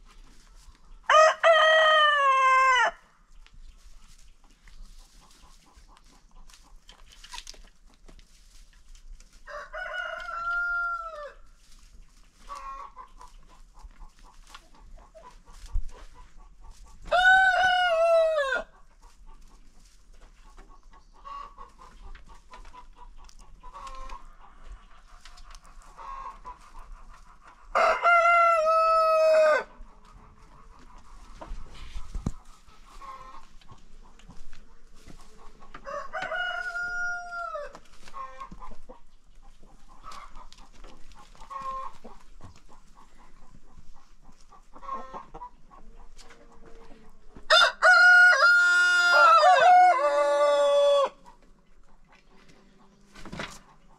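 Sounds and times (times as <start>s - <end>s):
hens clucking: 0.0s - 53.9s
roosters crowing: 1.1s - 3.0s, 9.4s - 11.5s, 17.0s - 18.8s, 27.7s - 29.9s, 35.4s - 38.6s, 47.5s - 51.3s.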